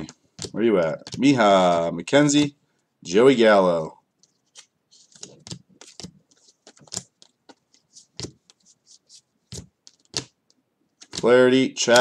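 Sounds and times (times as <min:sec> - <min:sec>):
trading cards flicked by hand: 0:04.5 - 0:08.6, 0:09.5 - 0:11.3.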